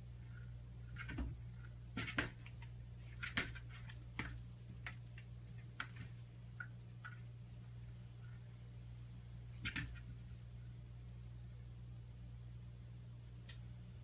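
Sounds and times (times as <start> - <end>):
steady low hum: 0.0 - 14.0
metallic jingling and clinking: 2.0 - 6.9.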